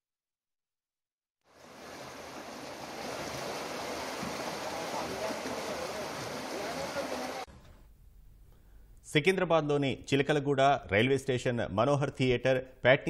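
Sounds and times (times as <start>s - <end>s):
floodwater rushing: 1.5s - 7.5s.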